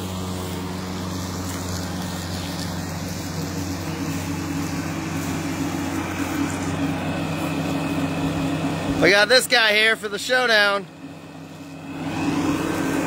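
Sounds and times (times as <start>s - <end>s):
lawn mower motor hum: 0.0s - 13.0s.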